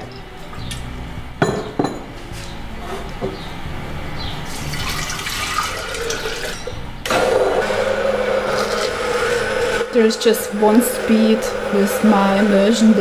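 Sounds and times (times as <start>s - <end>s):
water pouring and splashing into jar: 4.5s - 6.7s
immersion blender running: 5.0s - 13.0s.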